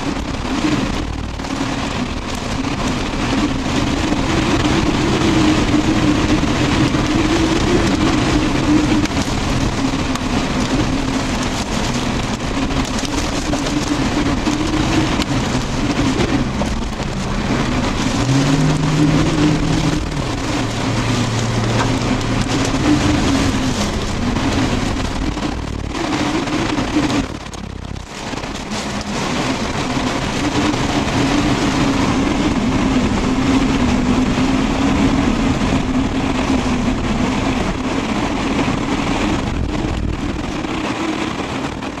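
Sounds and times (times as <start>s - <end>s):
heavy rain beating on car: 0.0s - 42.0s
strong wind: 0.0s - 42.0s
wavering low drone: 2.3s - 27.4s
rising tone: 16.4s - 24.5s.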